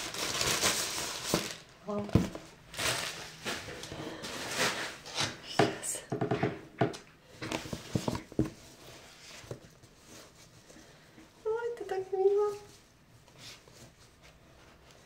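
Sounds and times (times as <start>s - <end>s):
paper bag rustling and crinkling: 0.0s - 5.5s.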